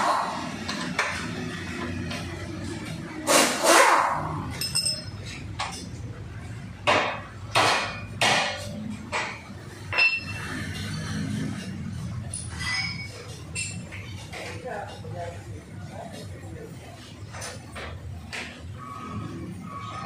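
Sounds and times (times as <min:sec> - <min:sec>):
metal tools knocking on metal: 0:04.5 - 0:06.0.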